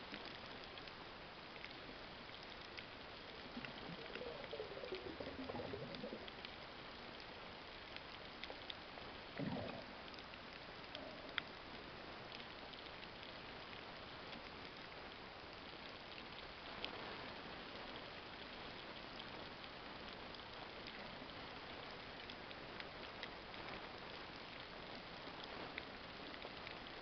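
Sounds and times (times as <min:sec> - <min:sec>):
sharp clicks and crackles: 0:00.0 - 0:17.0.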